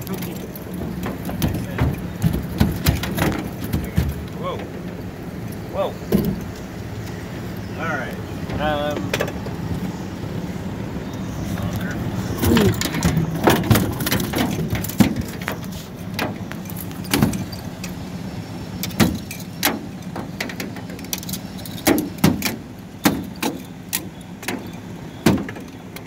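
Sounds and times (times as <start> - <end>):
fish clubbed in metal boat: 0.0 - 6.6, 12.0 - 26.0.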